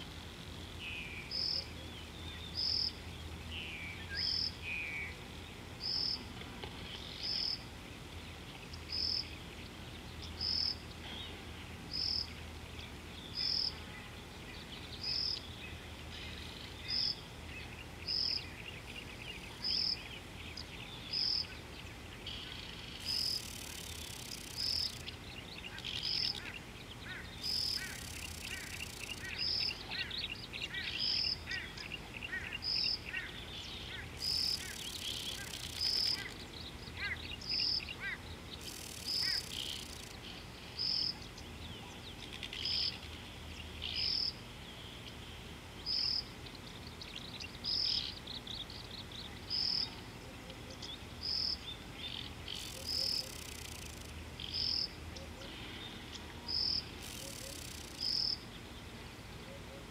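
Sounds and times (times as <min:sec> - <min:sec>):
birds chattering with quick chirps: 0:08.2 - 0:59.0
high hiss: 0:22.3 - 0:25.2, 0:38.5 - 0:41.1, 0:56.5 - 0:58.4.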